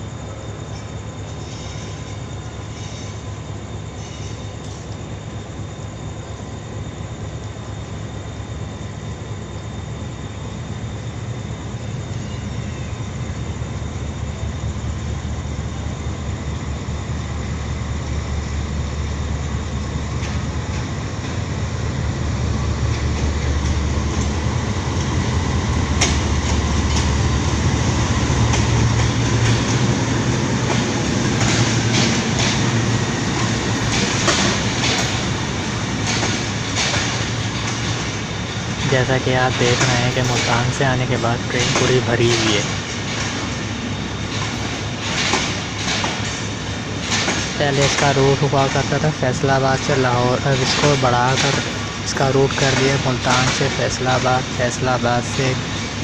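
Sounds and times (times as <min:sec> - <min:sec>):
locomotive engine rumble: 0:00.0 - 0:56.0
train wheels clacking on rail joints: 0:19.6 - 0:56.0.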